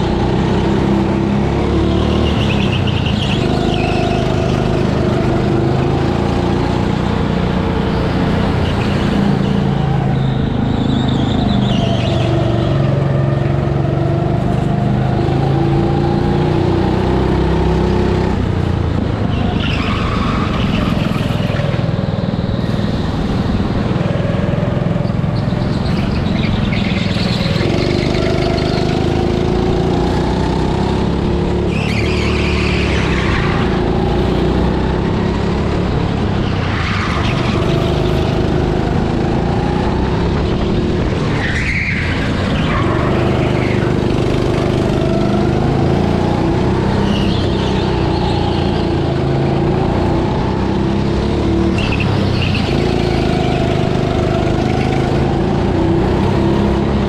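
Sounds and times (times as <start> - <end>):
go-kart motor running: 0.0 - 57.0
tyres squealing: 31.7 - 34.6.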